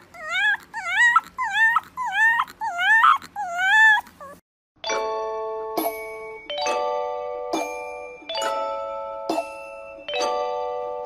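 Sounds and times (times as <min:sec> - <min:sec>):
puppy whining and yipping: 0:00.0 - 0:04.4
doorbell-like chime: 0:04.8 - 0:11.0.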